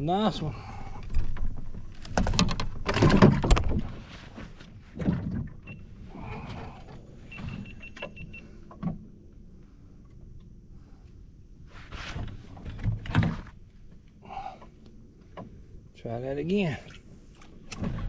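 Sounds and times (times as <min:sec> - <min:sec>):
knocks and scrapes against kayak hull: 0:01.0 - 0:07.8, 0:11.6 - 0:14.1.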